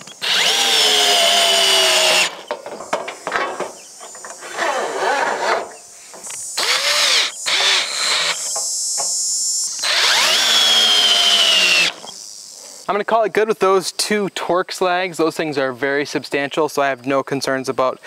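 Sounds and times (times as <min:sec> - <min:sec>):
cordless drill motor whine: 0:00.0 - 0:02.4, 0:06.3 - 0:12.3
drill trigger clicks: 0:09.8 - 0:12.1.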